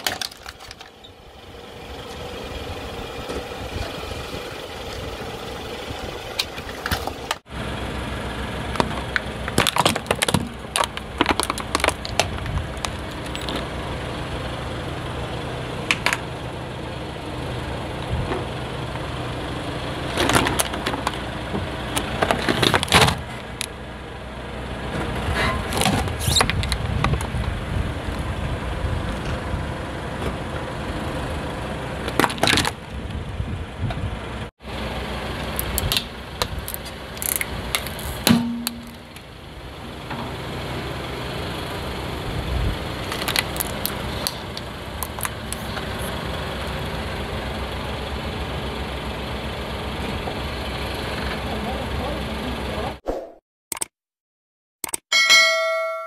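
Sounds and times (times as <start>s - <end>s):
plastic toys cracking under tyre: 0.0s - 1.0s, 9.5s - 13.3s, 35.6s - 38.2s, 43.1s - 45.7s
car engine idling: 0.0s - 25.8s, 26.8s - 53.0s.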